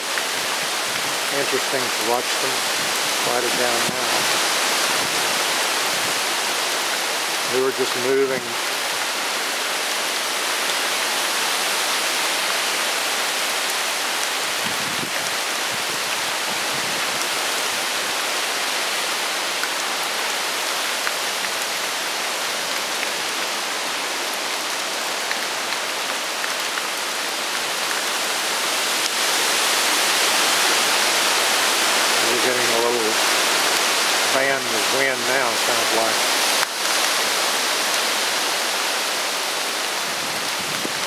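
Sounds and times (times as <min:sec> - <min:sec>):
heavy rain: 0:00.0 - 0:41.0
wind through thrashing trees: 0:00.0 - 0:41.0.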